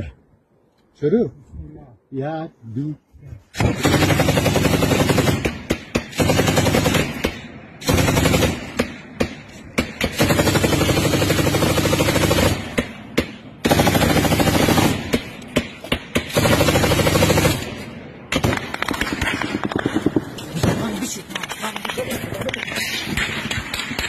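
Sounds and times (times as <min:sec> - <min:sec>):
automatic gunfire bursts: 0:03.6 - 0:08.9.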